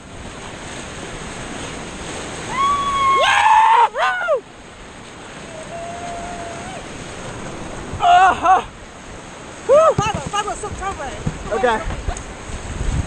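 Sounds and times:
whitewater rushing and splashing: 0.0s - 13.0s
person whooping yells: 2.5s - 4.4s, 5.5s - 6.8s, 8.0s - 8.7s, 9.7s - 10.0s.

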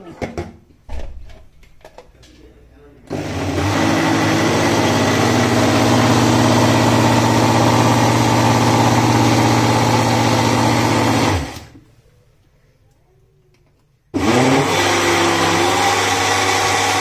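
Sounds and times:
electric blender motor whining: 3.1s - 11.8s, 14.2s - 17.0s.

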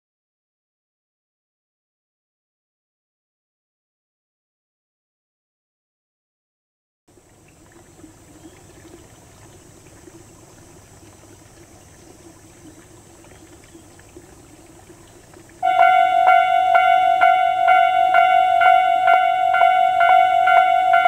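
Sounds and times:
faint outdoor background: 7.1s - 21.0s
level crossing alarm ringing: 15.6s - 21.0s.

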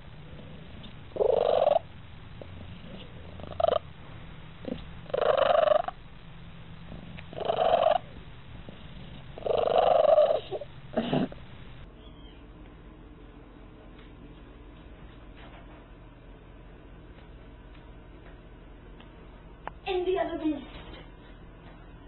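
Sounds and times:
cat purring: 0.0s - 6.1s, 6.7s - 11.9s.

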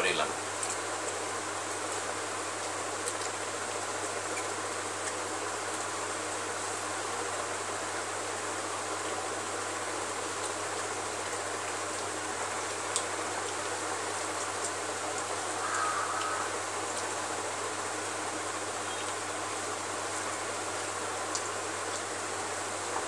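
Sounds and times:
steady hissing: 15.0s - 18.2s.

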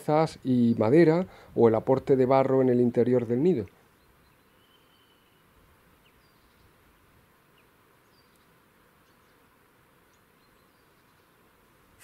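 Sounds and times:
faint outdoor hiss: 0.0s - 12.0s
high bird chirps: 4.0s - 5.4s.

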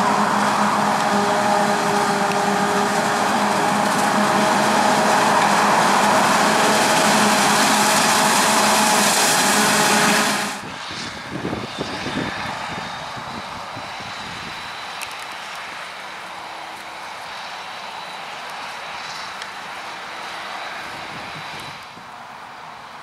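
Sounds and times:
forage harvester chopping maize: 0.3s - 10.5s.

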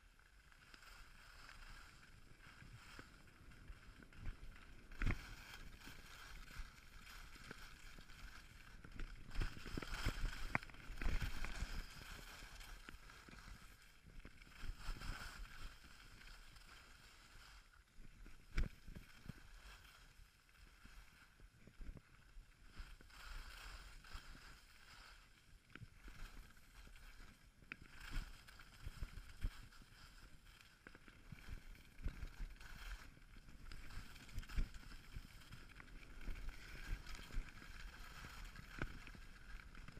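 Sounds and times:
skis scraping over snow: 0.7s - 21.4s, 22.8s - 39.9s
wind noise on microphone: 4.2s - 13.5s.

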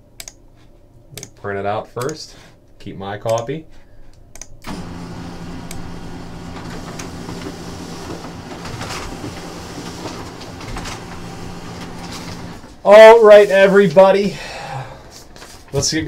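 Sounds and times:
printer whirring: 4.7s - 13.7s.

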